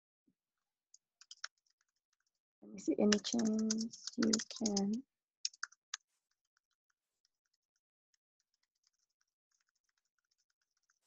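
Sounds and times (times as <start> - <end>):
computer keys typing: 1.2 - 1.6, 2.8 - 5.8.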